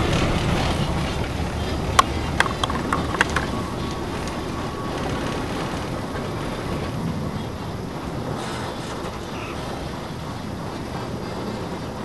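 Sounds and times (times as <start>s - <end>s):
faint thin whine: 0.0s - 12.0s
train rumbling: 0.0s - 12.0s
sharp metallic clicks: 0.1s - 6.2s.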